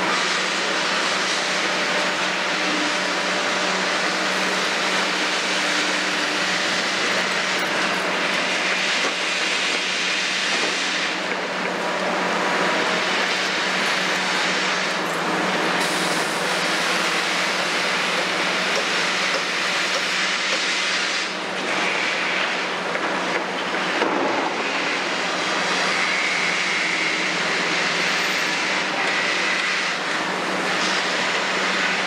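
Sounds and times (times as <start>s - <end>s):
diesel excavator engine running: 0.0s - 20.2s
hydraulics working: 0.0s - 32.0s.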